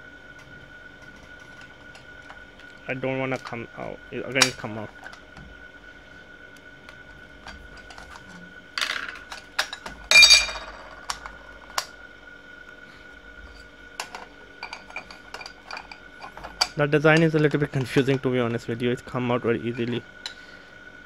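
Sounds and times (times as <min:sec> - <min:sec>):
faint high whine: 0:00.0 - 0:21.0
metal case parts clinking: 0:07.5 - 0:11.9, 0:14.0 - 0:17.8
ringing metal clank: 0:10.1 - 0:10.8.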